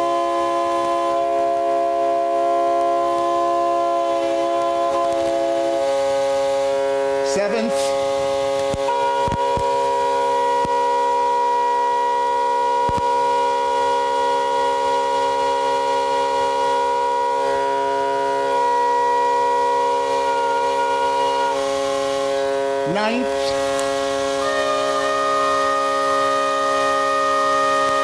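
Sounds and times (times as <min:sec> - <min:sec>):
pipe organ holding loud chord: 0:00.0 - 0:28.0.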